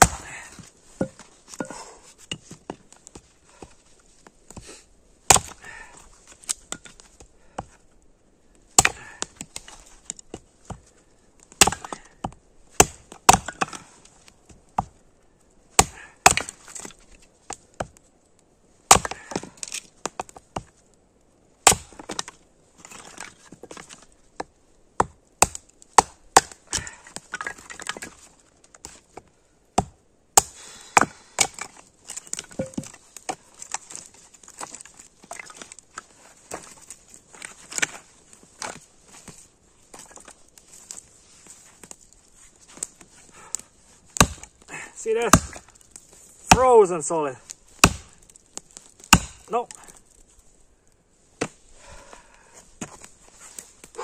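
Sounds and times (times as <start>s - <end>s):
sticks clattering: 0.0s - 3.2s, 31.0s - 42.1s
firewood splitting cracks: 0.0s - 7.9s, 8.5s - 15.0s, 15.7s - 21.0s, 21.6s - 54.0s.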